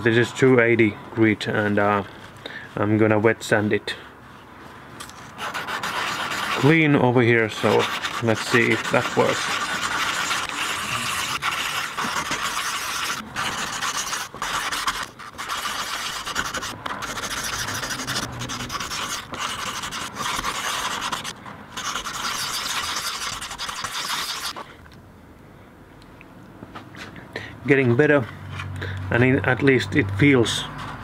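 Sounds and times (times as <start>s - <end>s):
sandpaper rasping on metal: 5.4s - 24.6s.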